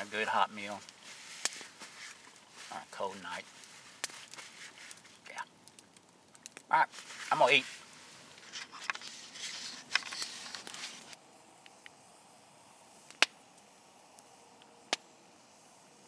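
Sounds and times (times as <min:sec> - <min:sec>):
faint steady hiss: 0:00.0 - 0:16.0
clothing and gear rustling: 0:00.6 - 0:05.2, 0:06.9 - 0:11.2.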